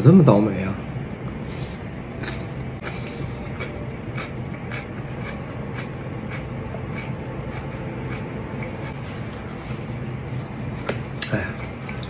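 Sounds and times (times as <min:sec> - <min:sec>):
low hum: 0:00.0 - 0:12.0
chewing soft crunches: 0:01.5 - 0:09.9.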